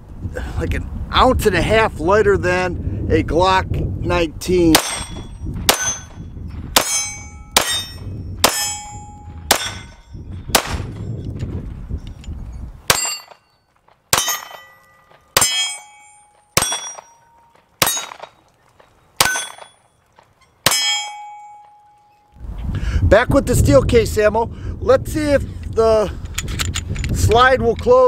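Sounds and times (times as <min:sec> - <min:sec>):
pistol shots: 0:04.8 - 0:06.2, 0:09.5 - 0:11.0, 0:16.6 - 0:17.2, 0:17.8 - 0:18.4
steel target clanging: 0:04.8 - 0:11.0, 0:12.9 - 0:22.3.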